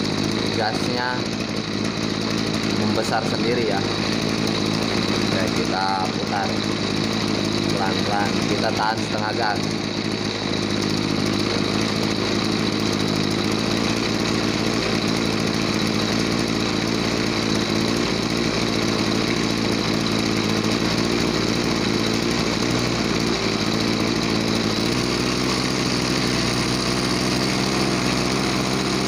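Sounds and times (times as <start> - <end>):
small two-stroke engine running: 0.0 - 29.0.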